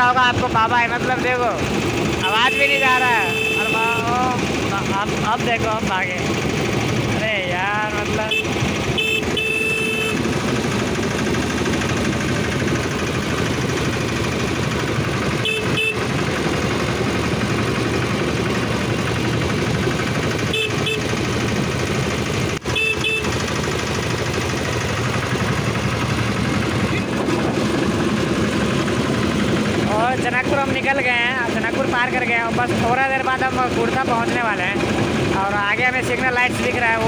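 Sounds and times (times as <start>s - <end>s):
motor trolley running on track: 0.0s - 37.0s
horn double toots: 2.2s - 4.3s, 8.2s - 10.3s, 15.4s - 16.1s, 20.4s - 21.2s, 22.6s - 23.4s.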